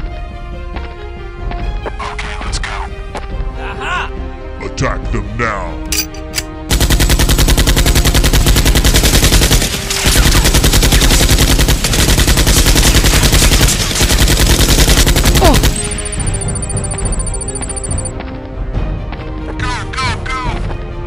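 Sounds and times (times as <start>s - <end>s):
machine-gun fire: 6.7s - 18.1s.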